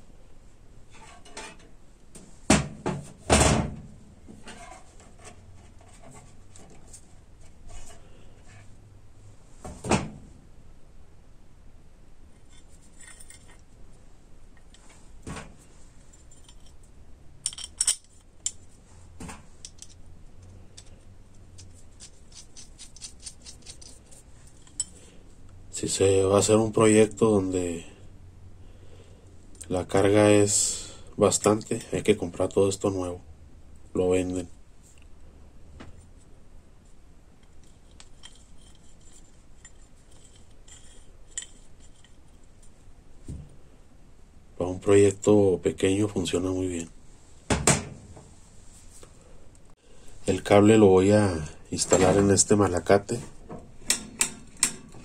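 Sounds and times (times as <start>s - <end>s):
metal parts clinking: 12.4s - 13.6s, 16.1s - 18.6s, 19.6s - 20.0s, 21.6s - 25.0s, 37.6s - 42.5s.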